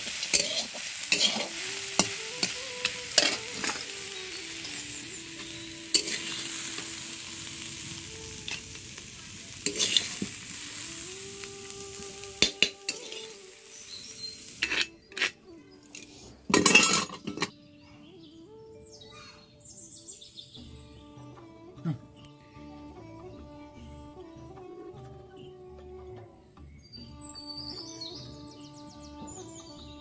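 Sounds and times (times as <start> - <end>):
spatula scraping a pan: 0.0 - 6.9, 9.6 - 10.8, 12.4 - 13.4, 14.2 - 15.4
leaves sizzling in a pan: 0.0 - 17.4.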